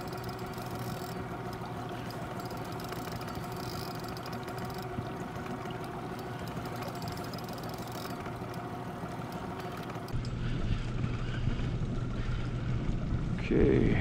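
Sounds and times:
boat engine idling: 0.0s - 14.0s.

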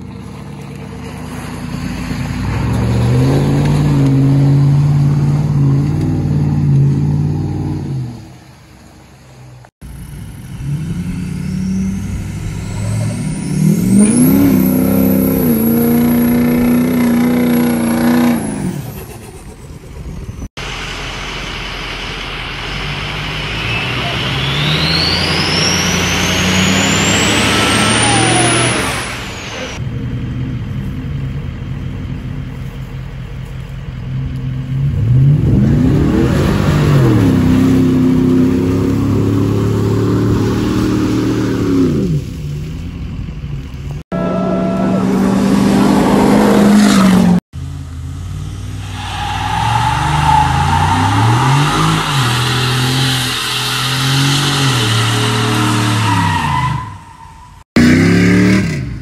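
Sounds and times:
truck engines revving hard: 0.0s - 32.5s, 33.9s - 59.0s
tyres spinning in a burnout: 48.8s - 57.6s.

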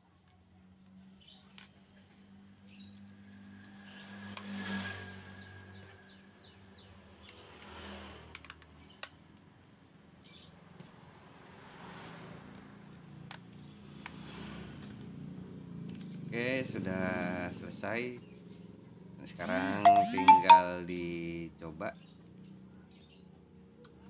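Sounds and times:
short high chirps: 19.4s - 20.8s.

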